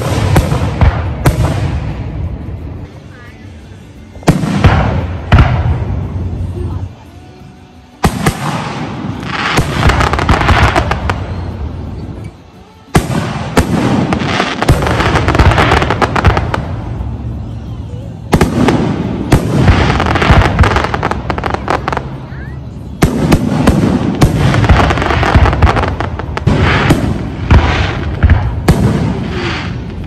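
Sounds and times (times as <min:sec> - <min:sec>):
firework shells bursting: 0:08.0 - 0:11.5.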